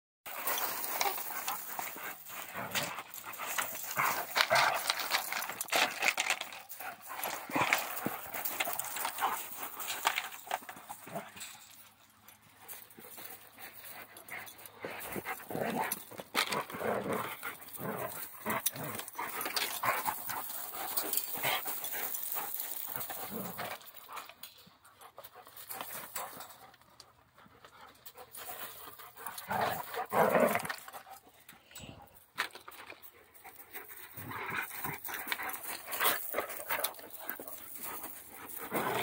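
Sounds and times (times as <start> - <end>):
dogs playing: 0.3 - 39.0.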